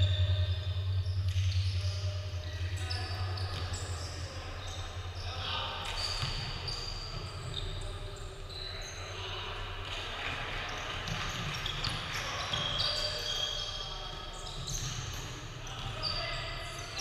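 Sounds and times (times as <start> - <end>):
players' voices echoing: 0.0 - 17.0
sneaker squeaks: 0.0 - 17.0
basketball bouncing: 6.2 - 6.5.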